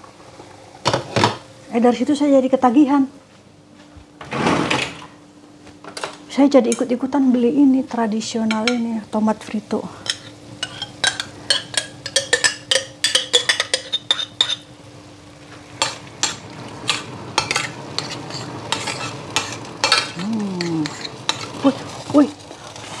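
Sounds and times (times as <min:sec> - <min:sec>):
faint frying sizzle: 0:05.5 - 0:23.0
utensil scraping a pan: 0:16.2 - 0:23.0.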